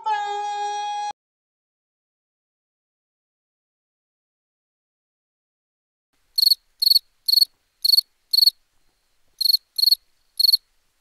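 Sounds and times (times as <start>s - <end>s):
cricket chirping: 6.4s - 8.6s, 9.4s - 10.7s.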